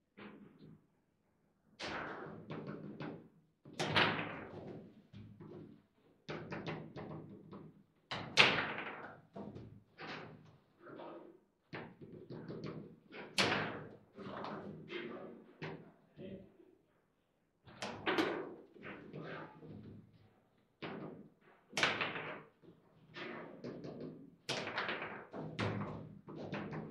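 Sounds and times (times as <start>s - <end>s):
foosball ball knocks and clacks: 1.8s - 10.4s, 11.7s - 15.9s, 17.7s - 20.0s, 20.8s - 26.9s.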